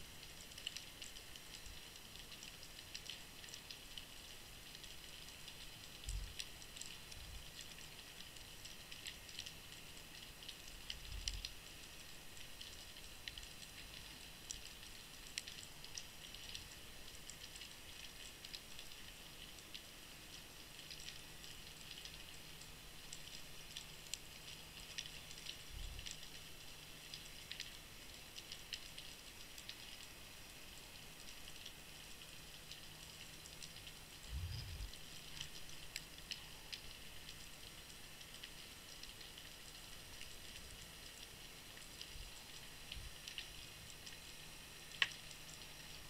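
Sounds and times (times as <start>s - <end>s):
underwater crackling and ticks: 0.0s - 46.0s
dull low thumps: 34.3s - 34.9s.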